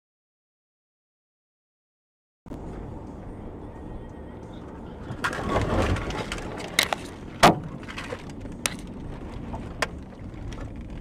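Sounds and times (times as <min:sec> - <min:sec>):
vehicle collision crunching: 0:05.0 - 0:11.0.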